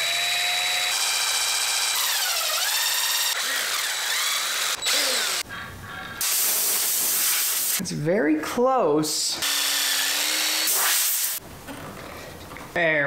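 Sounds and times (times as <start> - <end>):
cordless drill drilling metal: 0.0 - 5.4, 9.4 - 11.4.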